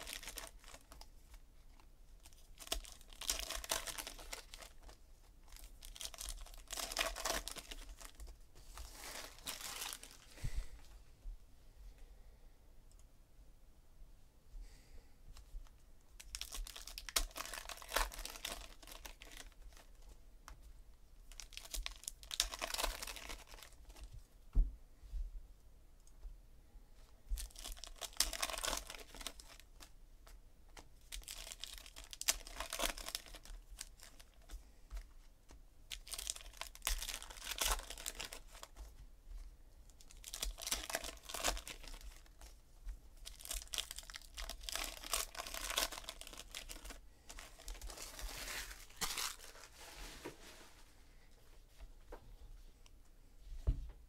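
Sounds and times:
foil wrappers tearing and crinkling: 0:00.0 - 0:01.1, 0:02.3 - 0:10.2, 0:16.2 - 0:19.9, 0:21.3 - 0:23.9, 0:27.4 - 0:29.8, 0:31.0 - 0:34.4, 0:35.9 - 0:38.8, 0:40.0 - 0:42.5, 0:43.2 - 0:49.8.

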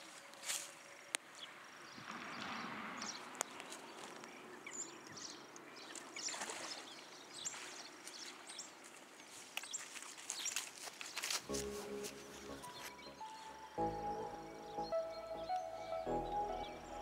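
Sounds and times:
faint water splashing: 0:05.6 - 0:13.8.

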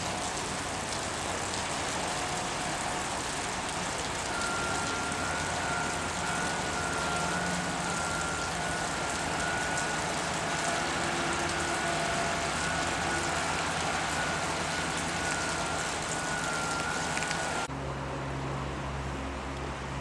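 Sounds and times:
construction machinery noise: 0:00.0 - 0:19.9
constant high whine: 0:00.0 - 0:20.0.

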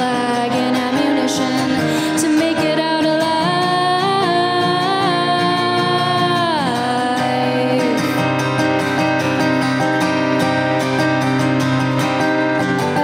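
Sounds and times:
woman singing: 0:00.0 - 0:08.5
strummed acoustic guitar: 0:00.0 - 0:13.0.

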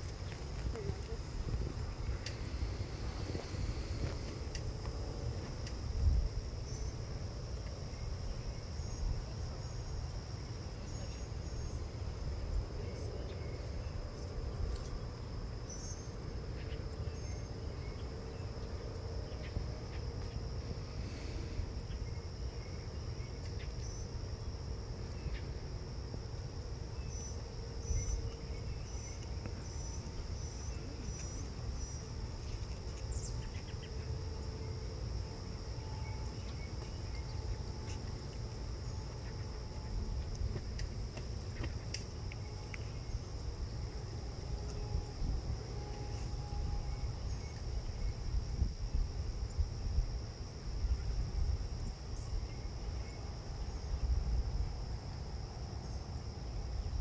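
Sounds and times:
insects trilling: 0:00.0 - 0:57.0.

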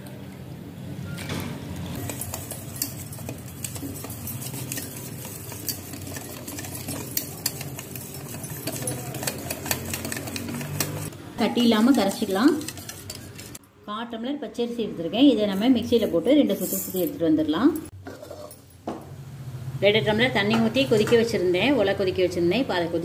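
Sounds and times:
spoon scraping metal bowl: 0:01.9 - 0:13.6, 0:18.0 - 0:18.7.

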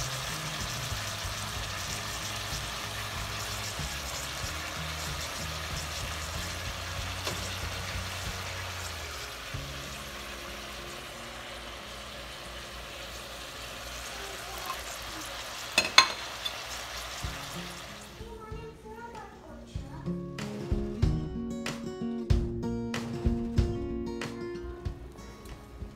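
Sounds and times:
steady hiss: 0:00.0 - 0:18.4.

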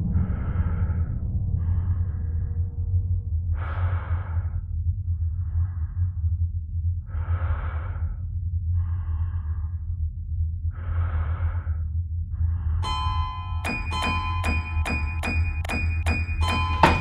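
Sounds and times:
slow heavy breathing: 0:00.0 - 0:13.2
steady low hum: 0:00.0 - 0:17.0.

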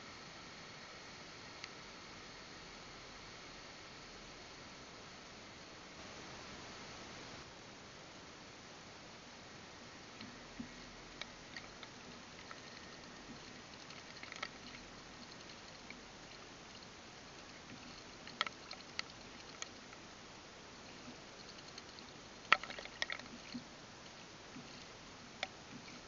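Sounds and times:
faint steady hiss: 0:00.0 - 0:26.0
bird splashing water: 0:11.2 - 0:20.0, 0:21.0 - 0:23.7.

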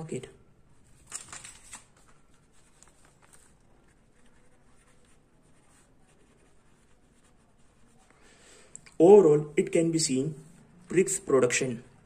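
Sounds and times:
pen scratching on paper: 0:03.8 - 0:08.2.

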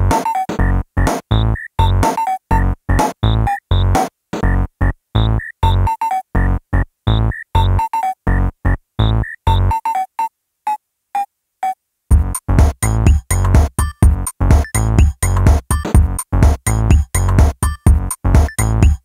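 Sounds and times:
synthesizer chopped chords: 0:00.0 - 0:04.6, 0:12.1 - 0:19.0
deep bass pulse: 0:12.1 - 0:19.0.

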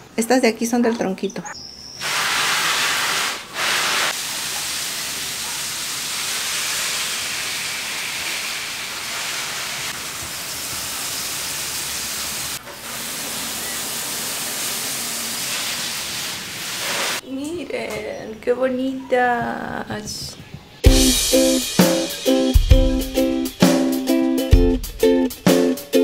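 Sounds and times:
hose water spraying on plants: 0:02.0 - 0:17.2.

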